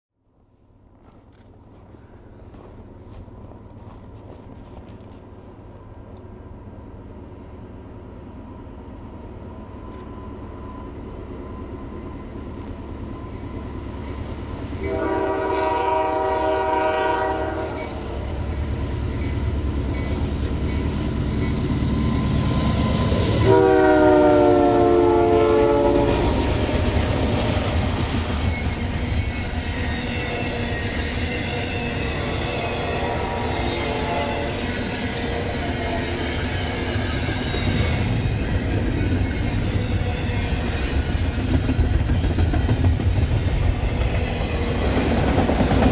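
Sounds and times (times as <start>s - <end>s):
freight train engine rumble: 0.3s - 45.9s
locomotive air horn blasts: 14.8s - 18.3s, 23.4s - 26.7s, 32.8s - 34.6s.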